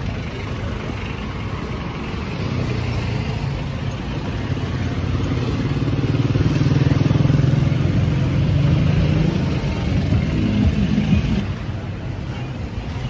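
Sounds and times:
street traffic: 0.0 - 13.0
small motorcycle engine: 4.4 - 10.8.

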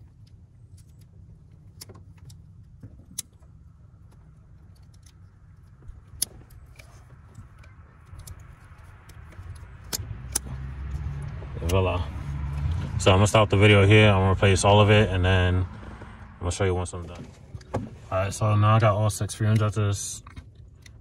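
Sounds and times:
light clicks of metal parts: 0.0 - 12.9, 19.1 - 21.0
low steady rumble: 0.0 - 21.0.

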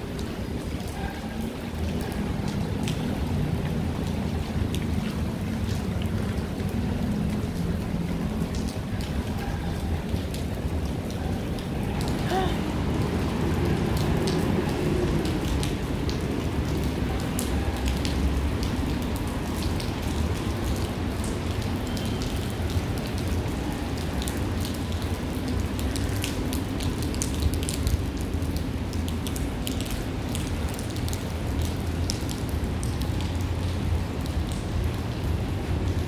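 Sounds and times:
rain drops impacting: 0.0 - 36.0
rain low rumble: 0.0 - 36.0.

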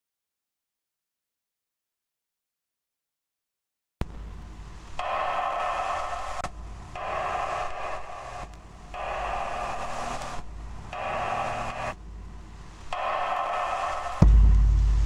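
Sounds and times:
harsh electronic buzz: 5.0 - 12.0.

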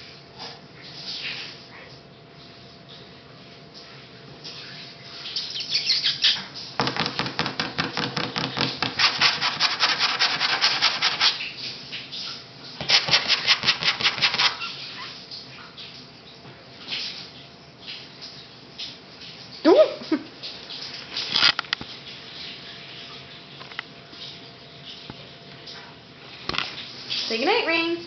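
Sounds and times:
rapid scratchy rubbing: 8.8 - 11.5, 12.8 - 14.8.

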